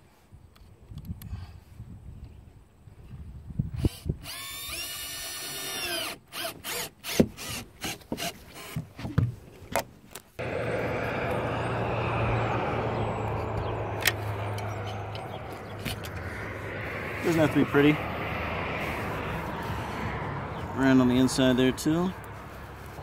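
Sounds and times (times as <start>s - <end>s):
cordless drill driving screws: 3.8s - 9.0s
low hum: 10.4s - 20.8s.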